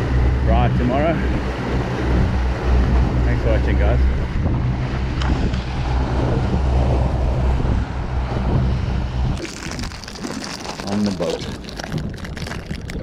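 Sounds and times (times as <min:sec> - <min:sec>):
outboard motors droning: 0:00.0 - 0:09.7
wake rushing: 0:00.0 - 0:13.0
wind buffeting microphone: 0:00.0 - 0:13.0.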